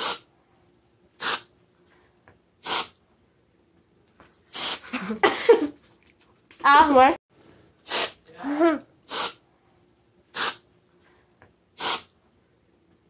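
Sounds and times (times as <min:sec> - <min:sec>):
whipped cream can hissing: 0:00.0 - 0:00.3, 0:01.2 - 0:01.5, 0:02.6 - 0:03.0, 0:04.5 - 0:04.9, 0:07.8 - 0:08.2, 0:09.0 - 0:09.4, 0:10.3 - 0:10.6, 0:11.8 - 0:12.1.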